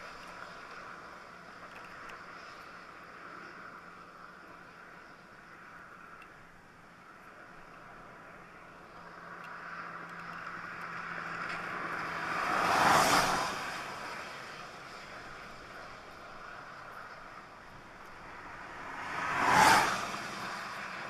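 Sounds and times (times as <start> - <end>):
road vehicle passing by: 8.8 - 21.0.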